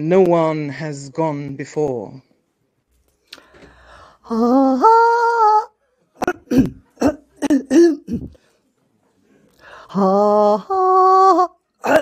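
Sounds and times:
person singing wordless notes: 4.2 - 8.1, 9.9 - 12.0
person clearing throat: 6.2 - 8.4.

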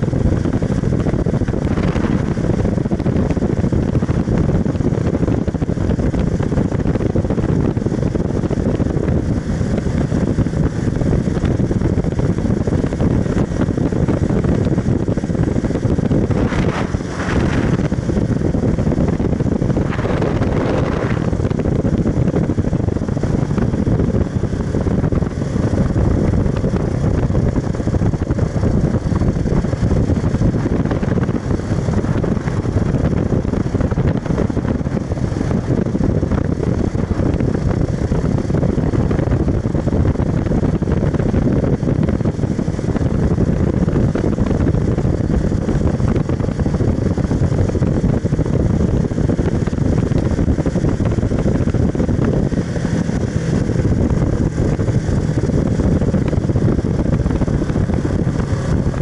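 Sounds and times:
motorcycle engine running: 0.0 - 59.0
wind rush over microphone: 0.0 - 59.0.

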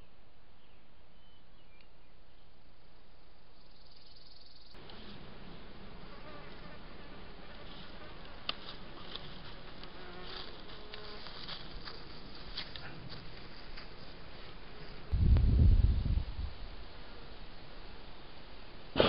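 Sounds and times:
insects buzzing: 3.6 - 12.4.

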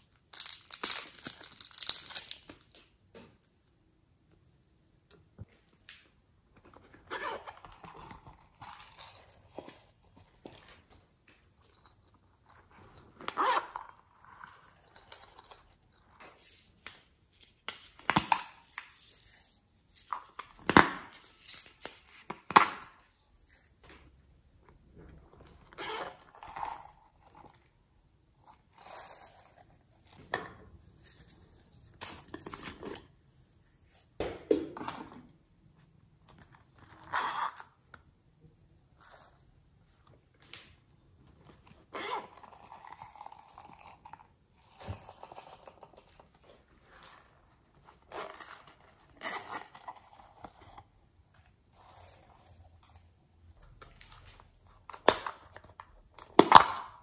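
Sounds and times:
fidget toys crinkling and popping: 0.0 - 3.0.

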